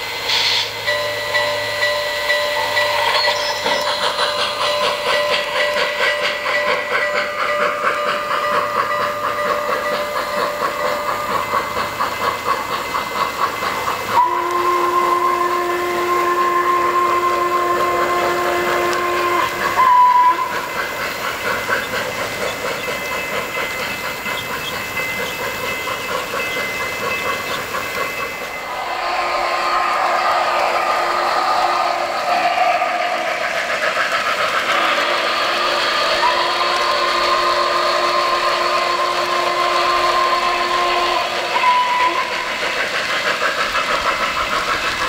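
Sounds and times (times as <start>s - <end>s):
rhythmic steam chuffing: 0.0s - 45.0s
wheels clicking on track: 0.2s - 45.0s
steam whistle: 14.0s - 22.7s, 34.7s - 42.8s.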